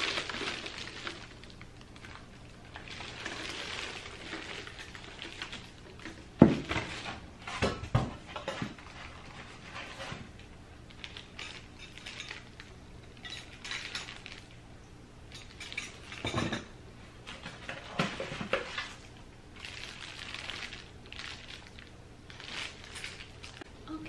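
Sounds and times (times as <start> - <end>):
plastic packaging crinkling: 0.0 - 7.2, 8.8 - 14.6, 17.6 - 23.7.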